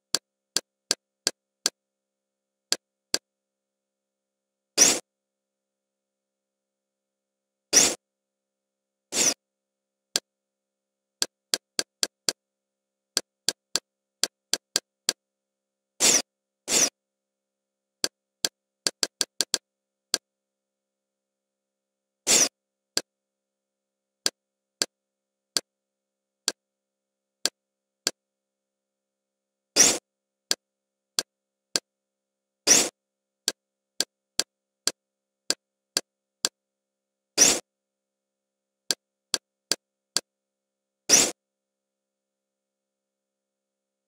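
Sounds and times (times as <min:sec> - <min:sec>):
hiss-like bursts: 0:09.1 - 0:09.4, 0:16.0 - 0:16.9.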